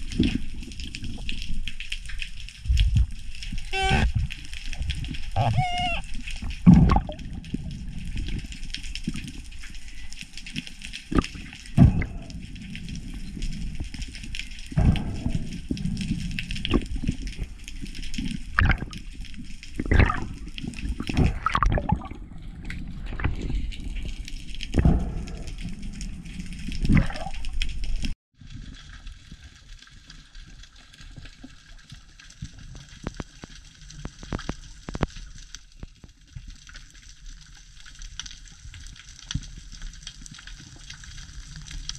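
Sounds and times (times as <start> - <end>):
faint crackling clicks: 0.0 - 20.9, 22.6 - 41.9
water rushing and sloshing: 0.0 - 28.2.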